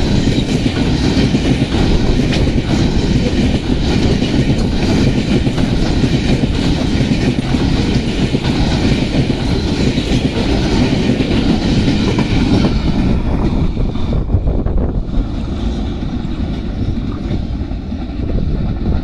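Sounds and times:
freight train wheels rattling past: 0:00.0 - 0:19.0.

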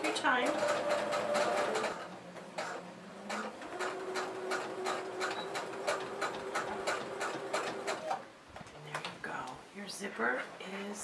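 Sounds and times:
sewing machine motor hum: 0:00.0 - 0:08.2
sewing machine stitching: 0:00.0 - 0:08.2.

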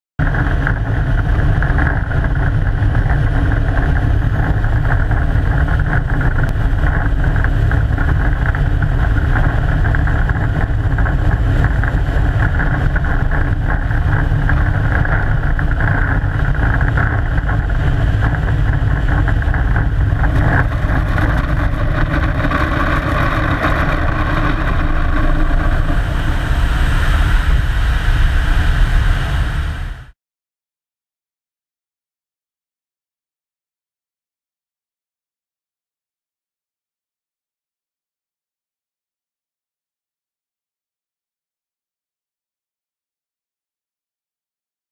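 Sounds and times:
deep rumble: 0:00.2 - 0:30.2
jet engine noise: 0:00.2 - 0:30.2
rush of airflow: 0:19.3 - 0:30.1.

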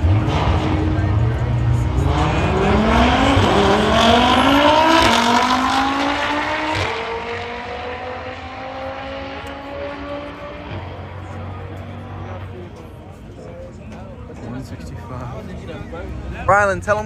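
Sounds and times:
car engine accelerating hard: 0:00.0 - 0:12.8.

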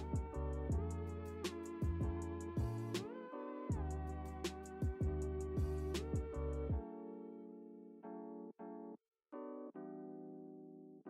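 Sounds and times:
deep kick drums: 0:00.0 - 0:01.0, 0:01.8 - 0:02.9, 0:03.7 - 0:04.0, 0:04.8 - 0:06.4.

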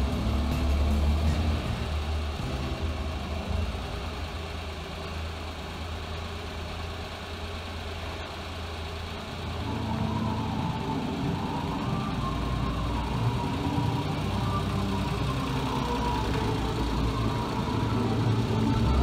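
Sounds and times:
engine idling: 0:00.0 - 0:19.0.

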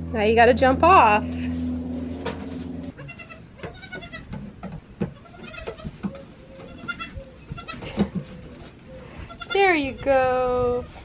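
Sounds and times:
goat kids bleating: 0:02.9 - 0:04.4, 0:05.1 - 0:08.1, 0:09.2 - 0:10.2
hooves knocking on wooden box: 0:03.6 - 0:06.2.

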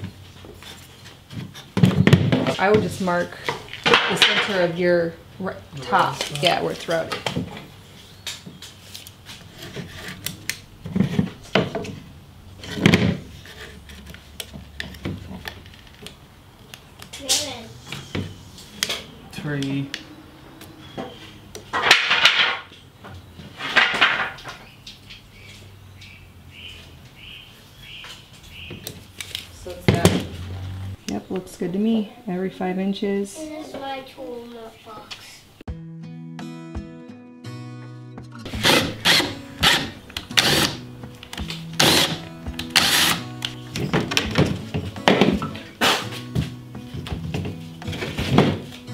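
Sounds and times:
background music with held chords: 0:35.7 - 0:48.9
cordless drill boring into wood: 0:38.5 - 0:40.8, 0:41.8 - 0:42.2, 0:42.8 - 0:43.2.

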